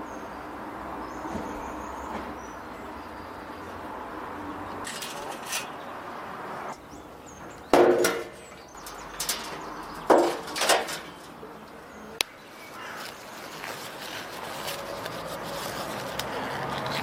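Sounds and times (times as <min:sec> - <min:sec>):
metal chimney starters clanking: 0:04.8 - 0:05.8, 0:07.9 - 0:11.4
small metal knocks: 0:04.8 - 0:05.8, 0:07.7 - 0:11.4.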